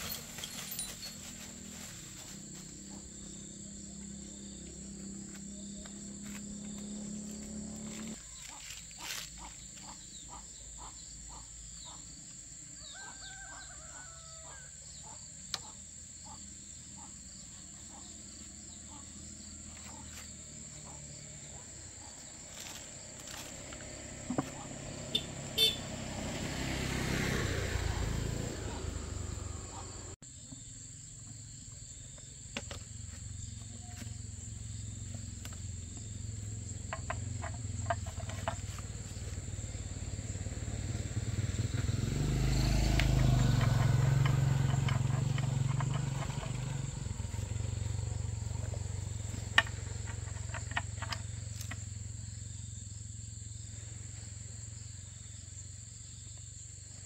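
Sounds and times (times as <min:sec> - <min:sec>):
light knocks and scrapes: 0:36.9 - 0:39.2.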